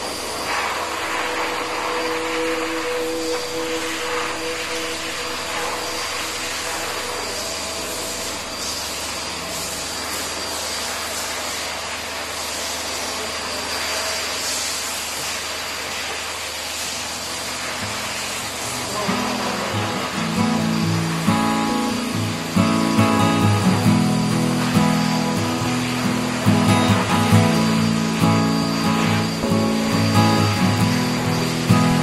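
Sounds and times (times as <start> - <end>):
pet grooming dryer blowing air: 0.0 - 32.0
guitar music: 1.5 - 8.6, 17.8 - 32.0.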